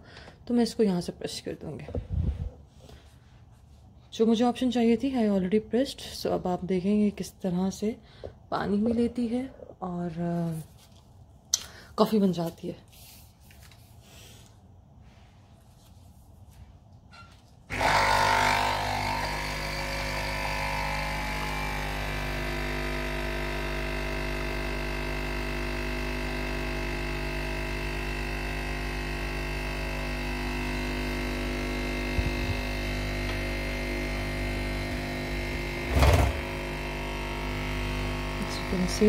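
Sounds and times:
coffee machine pump humming: 17.7 - 39.0.

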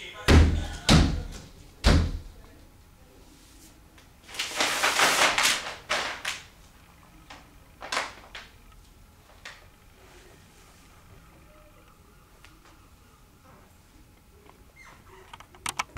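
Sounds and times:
paper rustling: 3.5 - 6.6, 7.3 - 8.6.

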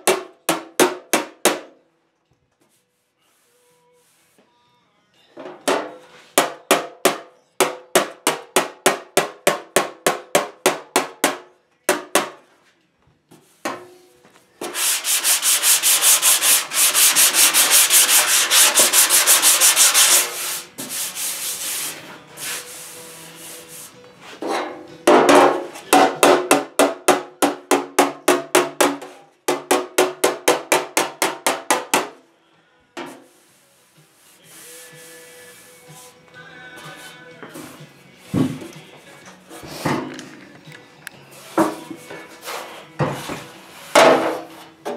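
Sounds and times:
hand sanding metal panel: 14.6 - 24.0, 33.1 - 36.2.

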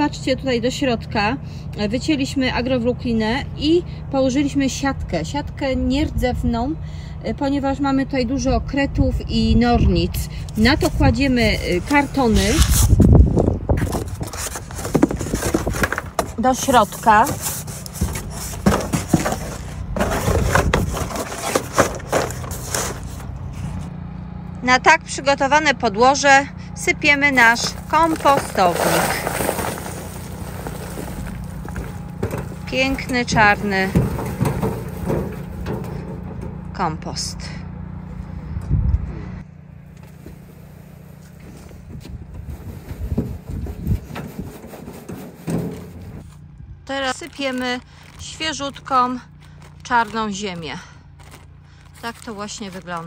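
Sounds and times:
cardboard rustling and scraping on wood: 10.6 - 23.9, 27.3 - 36.1, 40.0 - 46.4, 47.0 - 53.0
compost pouring into wooden bed: 27.7 - 32.0.

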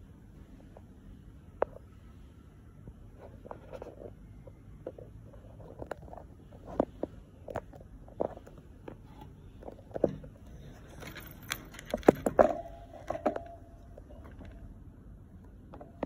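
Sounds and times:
hamster wheel clicks and knocks: 4.4 - 14.7.

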